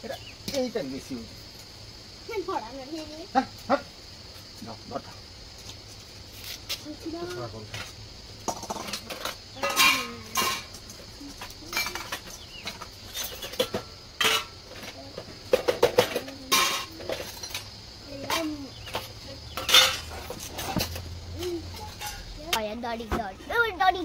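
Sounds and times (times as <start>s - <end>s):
steel dishes clinking: 8.5s - 10.8s, 11.7s - 14.6s, 15.6s - 17.7s, 19.6s - 20.2s, 21.7s - 22.3s.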